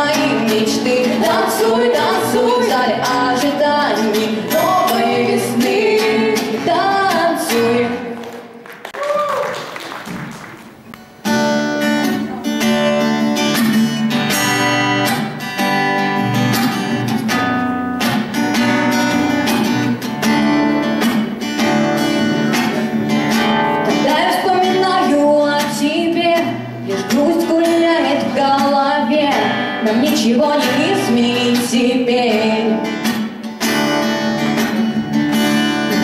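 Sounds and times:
woman singing: 0.0s - 8.4s, 23.9s - 33.0s
acoustic guitar strumming chords: 0.0s - 8.6s, 10.7s - 36.0s.

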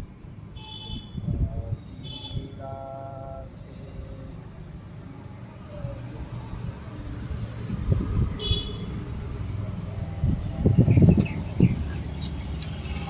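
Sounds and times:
distant traffic rumble: 0.0s - 13.0s
bird chirp: 10.6s - 13.0s.

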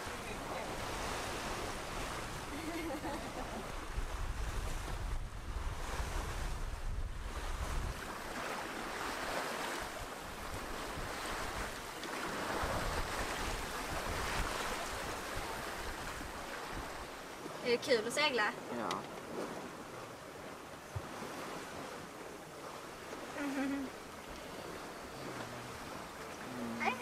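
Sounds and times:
wind buffeting microphone: 0.0s - 17.5s
water rushing along boat hull: 0.0s - 27.0s.

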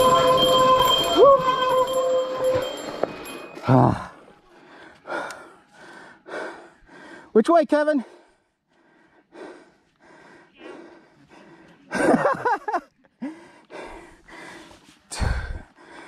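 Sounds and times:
person groaning: 3.6s - 4.2s
person gasping for breath: 8.1s - 11.9s, 13.2s - 16.0s.

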